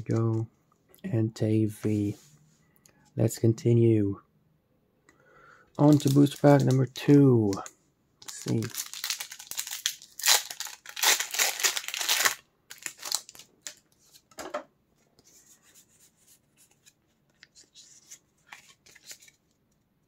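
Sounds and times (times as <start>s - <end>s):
foil wrapper tearing and crinkling: 5.8s - 6.8s, 8.2s - 13.8s.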